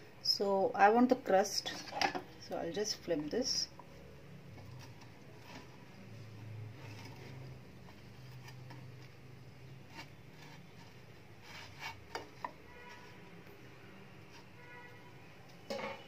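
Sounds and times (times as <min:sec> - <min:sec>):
plastic spatula scraping frying pan: 0:06.7 - 0:13.3.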